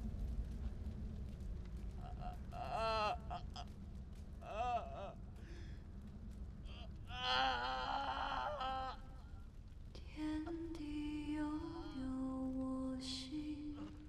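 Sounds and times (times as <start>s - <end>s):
man crying in pain: 7.1s - 9.0s.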